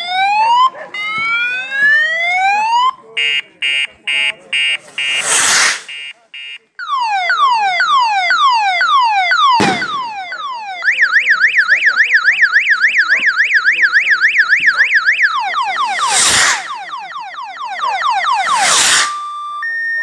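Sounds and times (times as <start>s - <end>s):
electronic siren wailing: 0.0s - 3.0s, 6.8s - 20.0s
sharp bang: 4.8s - 6.0s, 9.6s - 10.3s, 15.8s - 16.9s.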